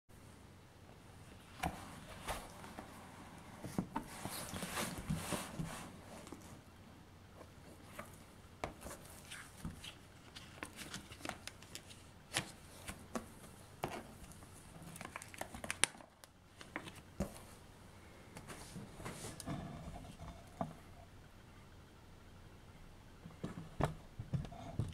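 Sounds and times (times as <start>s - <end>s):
plastic sleeves crinkling and clicking: 7.9s - 17.4s.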